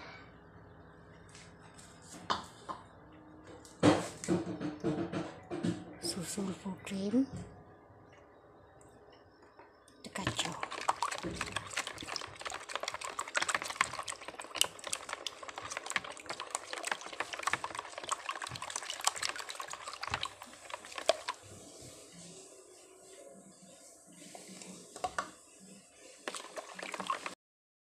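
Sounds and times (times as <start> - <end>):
liquid sloshing: 10.1 - 22.4, 26.0 - 27.4.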